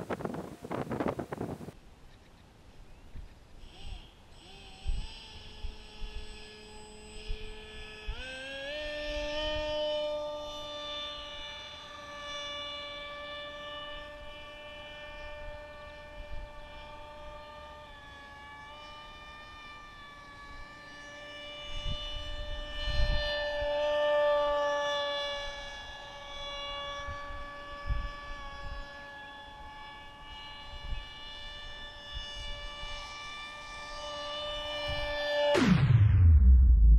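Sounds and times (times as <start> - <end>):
wind rumbling on microphone: 0.0 - 1.8, 21.6 - 24.0
model aircraft motor whining: 0.0 - 36.0.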